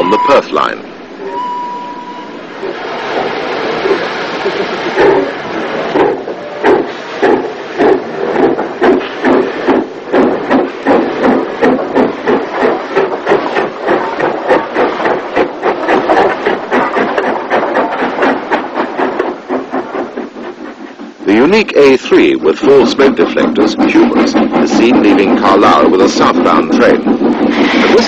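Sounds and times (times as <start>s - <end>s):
steam locomotive exhaust beats: 0.0s - 28.0s.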